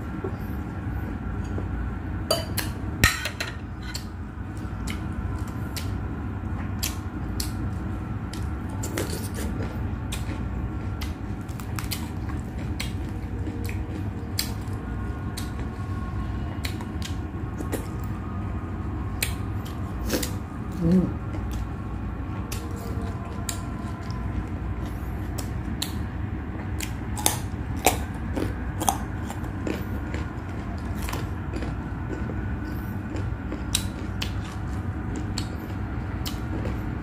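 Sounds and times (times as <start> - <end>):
steady low hum: 0.0 - 37.0
wet chewing and mouth smacks: 8.3 - 15.6, 26.8 - 36.8.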